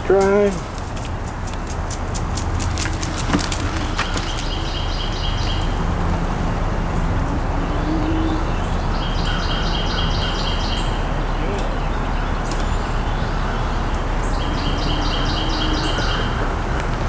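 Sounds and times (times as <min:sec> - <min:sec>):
bike tyres rumbling on dirt: 0:00.9 - 0:05.7
bird chirping trill: 0:03.6 - 0:05.9, 0:07.4 - 0:16.6.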